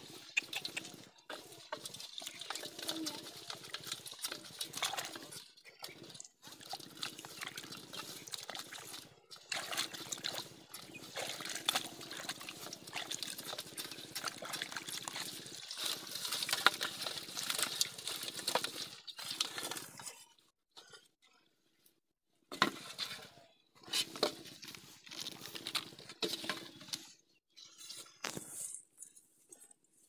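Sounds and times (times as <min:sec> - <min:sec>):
fish splashing in a metal basin: 0:00.0 - 0:20.1
wet mud squelching: 0:00.0 - 0:20.2.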